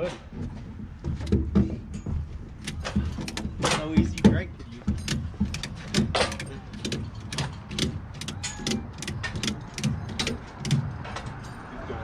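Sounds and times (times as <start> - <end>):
ratchet strap clicking: 2.6 - 11.0.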